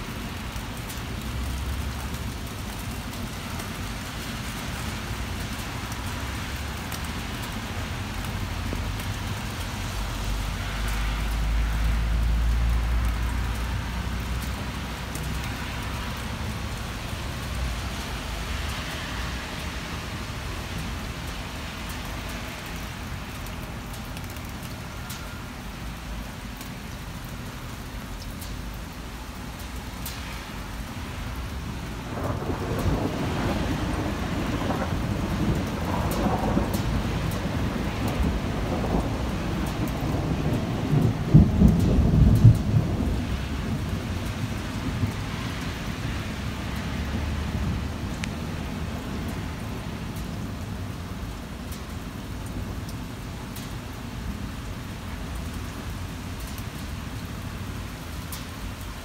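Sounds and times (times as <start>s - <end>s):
heavy rain: 0.0s - 59.0s
thunder rumbling: 32.0s - 45.3s.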